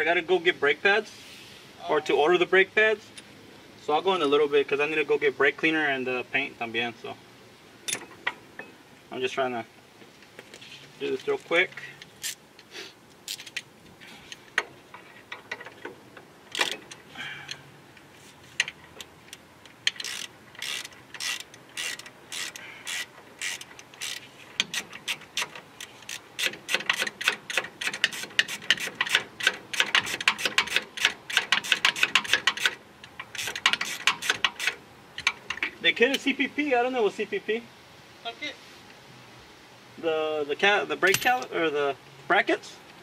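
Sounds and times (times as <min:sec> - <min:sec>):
socket ratchet clicking: 0:18.6 - 0:35.7.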